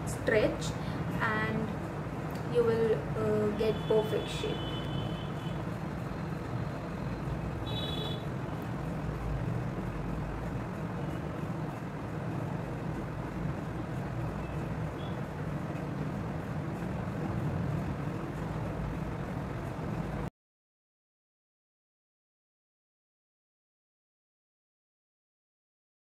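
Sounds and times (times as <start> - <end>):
low background rumble: 0.0 - 20.3.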